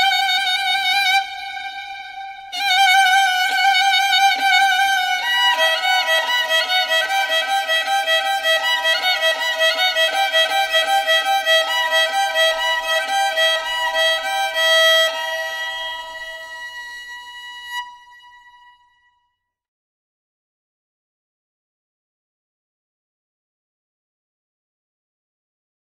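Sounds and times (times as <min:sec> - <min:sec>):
violin playing a melody: 0:00.0 - 0:19.0.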